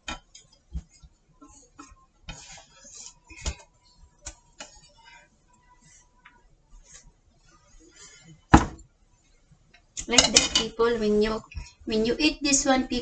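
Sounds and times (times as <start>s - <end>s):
chopsticks tapping a frying pan: 0.0s - 0.6s.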